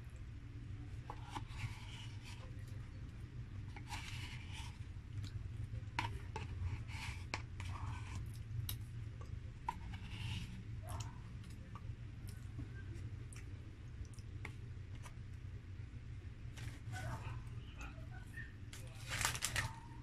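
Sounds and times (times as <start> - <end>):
low steady hum: 0.0 - 20.0
soft rubbing and scraping: 1.0 - 3.0, 3.6 - 4.9, 9.6 - 11.2, 16.5 - 20.0
paper cup handled: 18.8 - 19.8.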